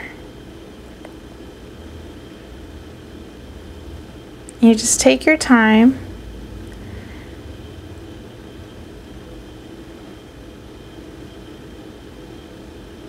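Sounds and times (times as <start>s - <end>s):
background hum and hiss: 0.0s - 13.0s.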